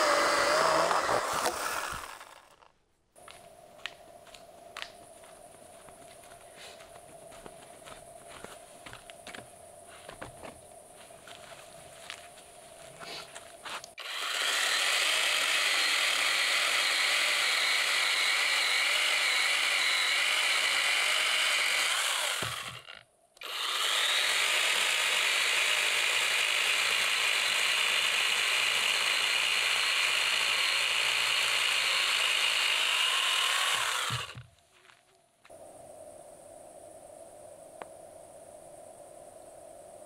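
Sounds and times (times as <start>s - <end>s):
power saw cutting firewood: 0.0s - 2.7s, 14.0s - 34.5s.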